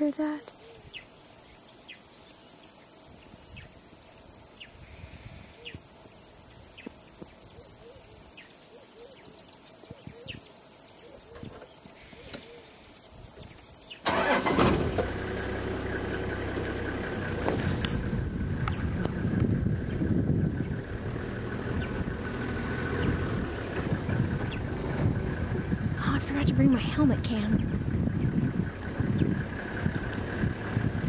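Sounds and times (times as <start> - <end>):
high insect trill: 0.0 - 31.0
vehicle engine running: 14.1 - 31.0.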